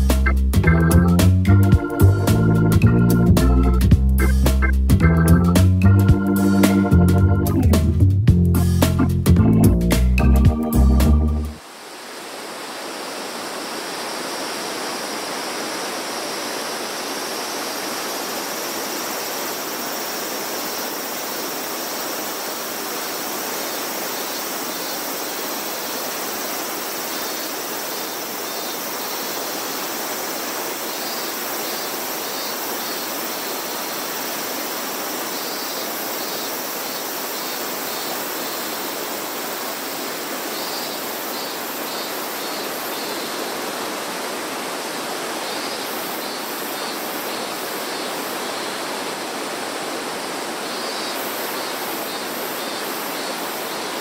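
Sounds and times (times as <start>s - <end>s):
waterfall rushing: 11.5s - 54.0s.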